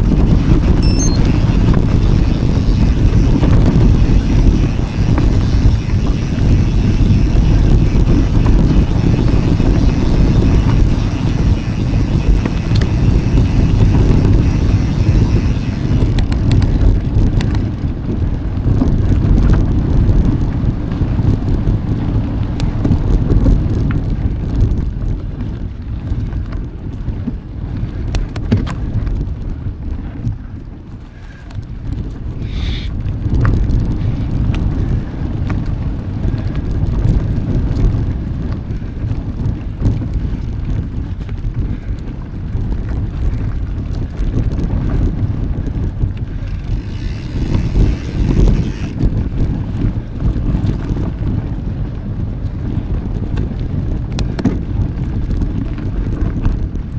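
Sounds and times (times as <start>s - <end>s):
sharp ticks from bike: 0.0s - 56.9s
wind buffeting microphone: 0.0s - 56.9s
high squeak: 0.8s - 1.3s.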